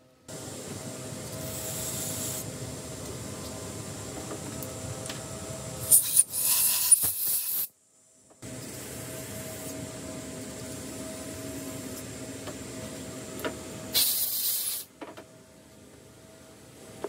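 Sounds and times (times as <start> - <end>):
compressed air hissing: 1.4 - 2.5, 5.8 - 7.7, 13.9 - 14.9.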